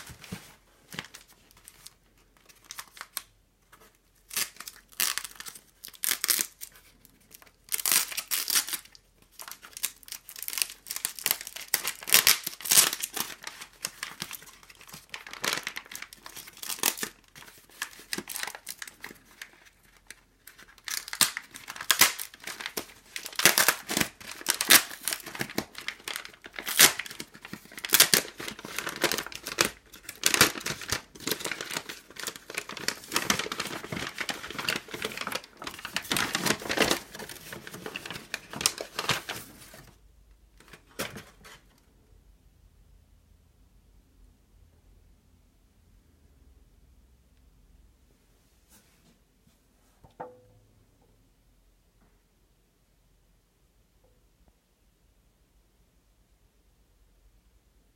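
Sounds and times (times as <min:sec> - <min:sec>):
plastic mailer bag crinkling: 0:04.3 - 0:39.9.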